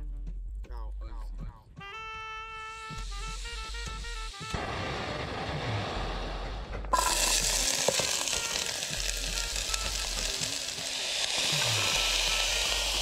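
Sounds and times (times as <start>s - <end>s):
background music with bass line: 0.0s - 13.0s
onions sizzling in pot: 2.9s - 5.7s, 6.9s - 13.0s.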